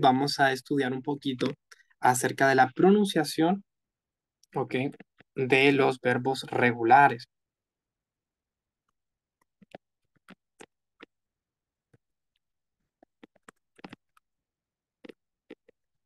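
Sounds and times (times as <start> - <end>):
faint clicks and taps: 4.4 - 5.5, 8.8 - 11.2.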